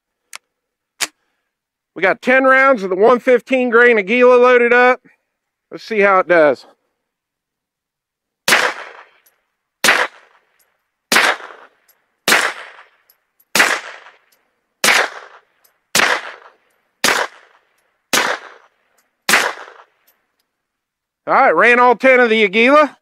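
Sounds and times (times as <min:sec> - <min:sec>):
suppressed pistol shots: 0:08.5 - 0:10.5, 0:11.1 - 0:20.1.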